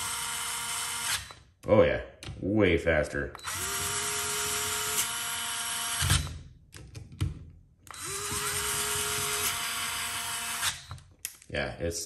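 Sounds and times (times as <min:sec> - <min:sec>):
cordless screwdriver motor whir: 0:00.0 - 0:01.4, 0:03.4 - 0:06.3, 0:07.9 - 0:11.0.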